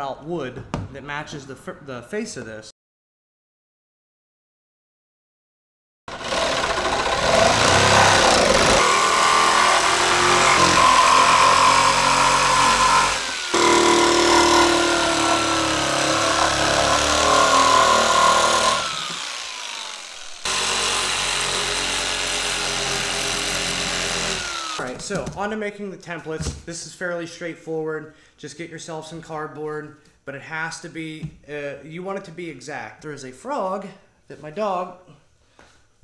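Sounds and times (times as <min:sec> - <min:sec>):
power saw cutting fiberglass: 0:06.1 - 0:24.9.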